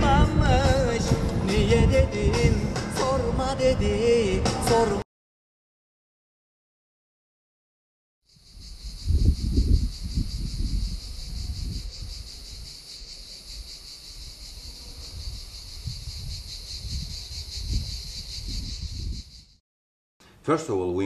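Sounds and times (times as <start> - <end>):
wind rumbling on microphone: 0.0 - 5.0, 8.4 - 19.6
cicadas buzzing: 8.3 - 19.6.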